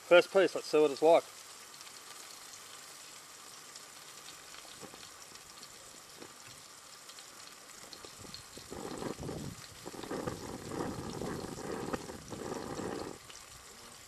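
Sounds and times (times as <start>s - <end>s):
fish sizzling in a pan: 0.0s - 14.0s.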